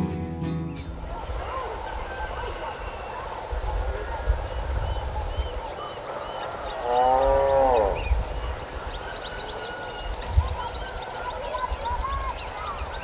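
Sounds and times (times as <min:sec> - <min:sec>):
small birds chirping: 0:00.5 - 0:13.0
loud drawn-out animal call: 0:06.4 - 0:08.1.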